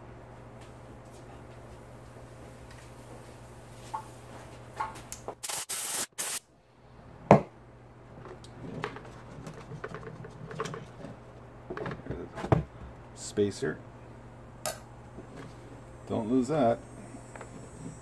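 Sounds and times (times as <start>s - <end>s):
compressed air blasts from blow gun: 5.4s - 6.4s.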